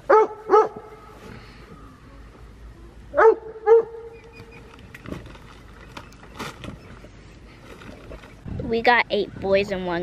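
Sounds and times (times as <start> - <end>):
dog barking: 0.1 - 0.9, 3.2 - 4.1.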